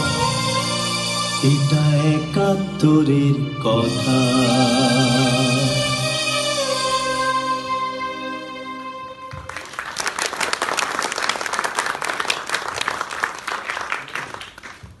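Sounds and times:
music held chord: 0.0 - 9.4
audience applause: 9.4 - 15.0.

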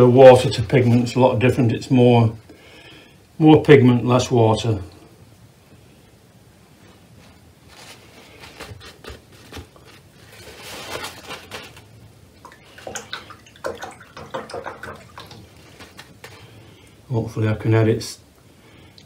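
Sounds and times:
paper towel rustling: 0.0 - 1.4, 6.6 - 13.8, 14.4 - 16.7.

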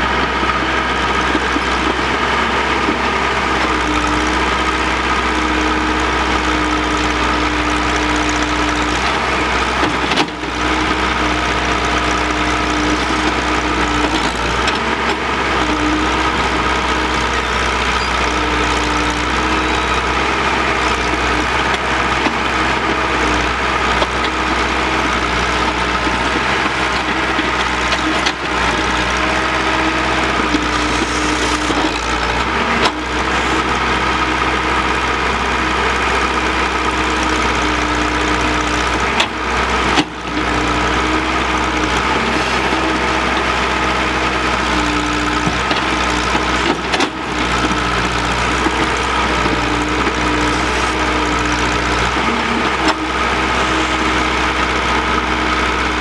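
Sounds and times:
dump truck engine: 0.0 - 56.0
excavator working: 0.0 - 56.0.

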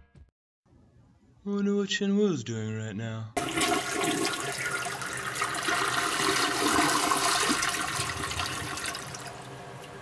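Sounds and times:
toilet flushing: 3.4 - 10.0.

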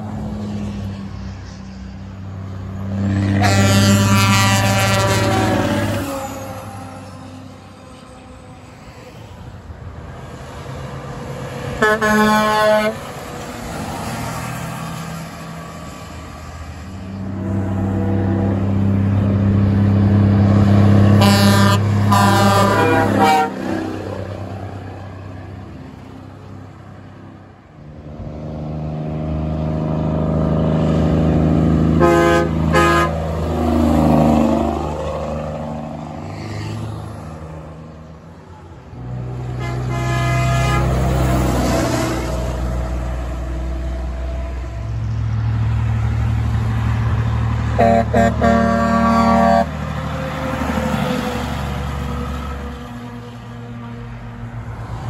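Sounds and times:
diesel trucks driving past: 0.0 - 55.0
truck horn blasts: 3.1 - 6.1, 11.8 - 13.1, 21.0 - 24.1, 31.9 - 33.6, 39.5 - 42.3, 47.7 - 49.8.

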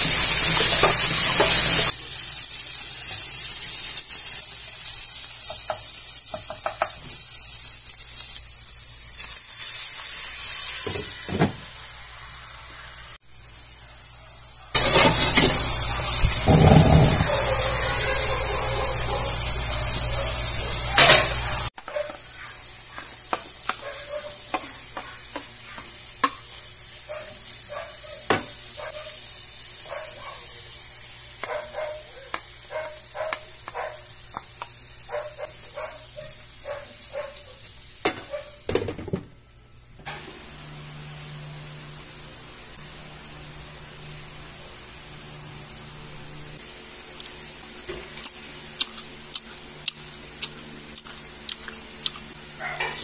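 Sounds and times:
meat sizzling in hot oil: 0.0 - 38.8
stirring clicks and scrapes in pan: 21.8 - 26.6.

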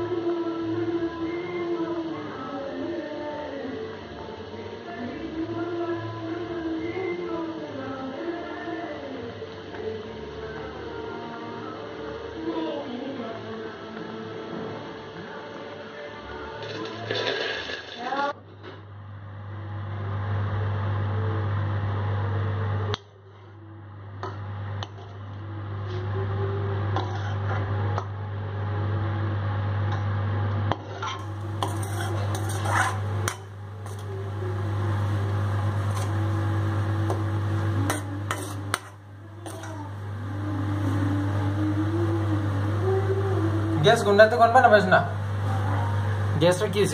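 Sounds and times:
steady low hum: 18.4 - 46.9
metal ladle scraping a wok: 27.0 - 27.6, 30.7 - 34.3, 35.7 - 36.3, 37.8 - 39.9.

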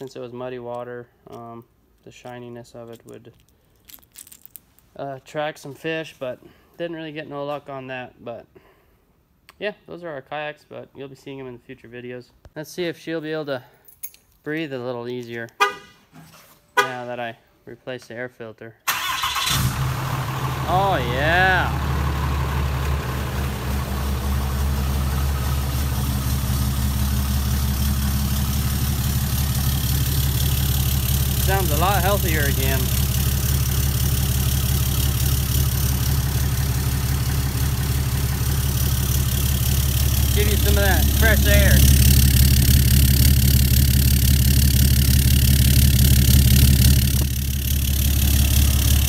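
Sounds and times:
pickup truck engine idling: 19.7 - 49.0.

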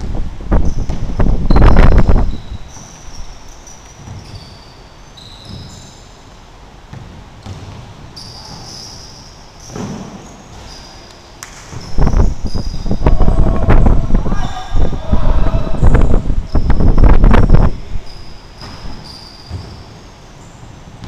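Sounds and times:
wind buffeting on microphone: 0.0 - 2.7, 11.8 - 18.0
basketball bouncing on gym floor: 0.6 - 3.1, 3.8 - 4.6, 6.8 - 8.9, 9.6 - 10.8, 11.4 - 13.0, 18.6 - 19.9
sneaker squeaks: 0.6 - 13.1, 16.2 - 21.0.

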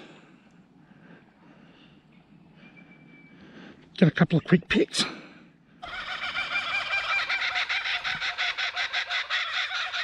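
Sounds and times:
bird calling rapid notes: 5.8 - 10.0.

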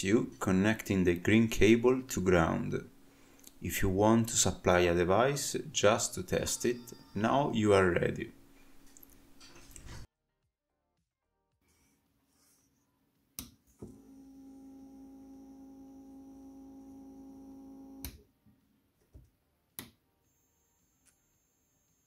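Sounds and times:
small electric motor whine: 13.8 - 18.1.

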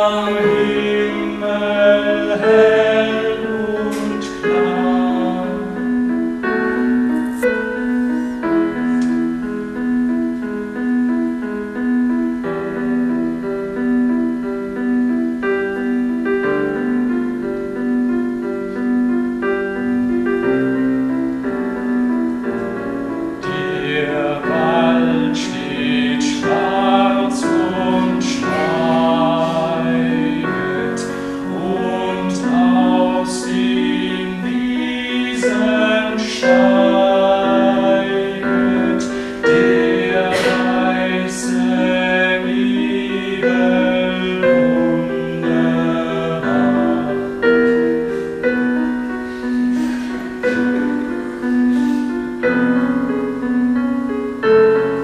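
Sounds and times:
keyboard broken chords: 0.0 - 55.0
men singing together: 23.6 - 47.2.

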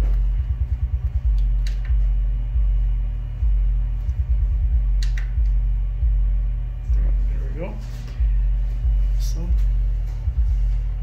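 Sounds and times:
deep test tone hum: 0.0 - 11.0
brief clicks: 5.0 - 5.4.

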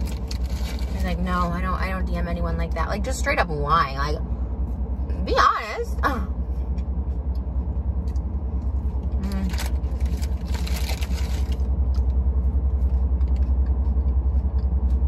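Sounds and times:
rustling: 0.0 - 1.2, 9.2 - 11.7
car engine idling: 0.0 - 15.0.

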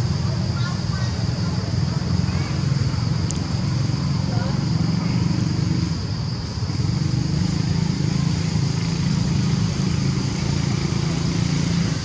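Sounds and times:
high hiss: 0.0 - 12.0
small engine droning: 0.0 - 12.0.

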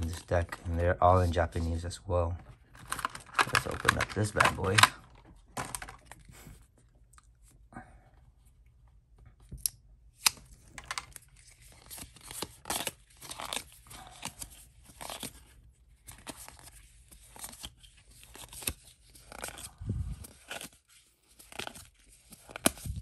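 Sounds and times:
paper cards rustling and crinkling: 0.0 - 7.6, 9.3 - 23.0
sharp packaging snaps: 2.8 - 5.0, 9.6 - 11.2.

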